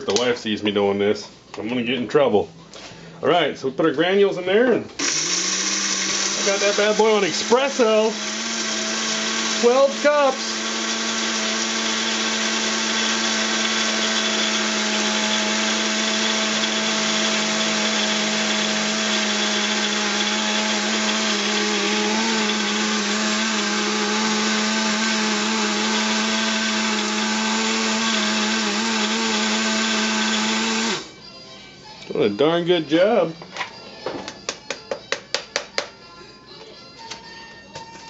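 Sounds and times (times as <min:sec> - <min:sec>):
coffee grinder grinding: 0:05.0 - 0:31.1.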